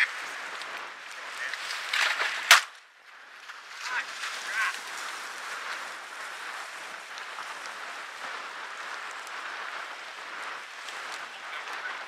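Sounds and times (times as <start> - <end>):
choppy waves on lake water: 0.0 - 12.0
wind: 0.0 - 12.0.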